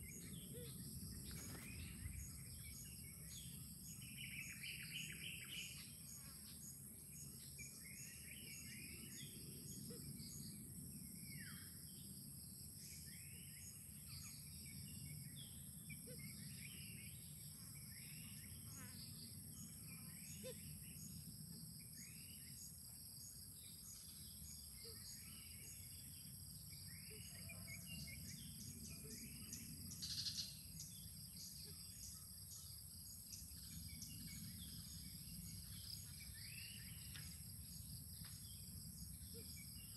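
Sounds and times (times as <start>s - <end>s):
high insect buzz: 0.0s - 8.1s, 16.7s - 39.9s
small birds chirping: 0.0s - 12.1s, 12.8s - 39.9s.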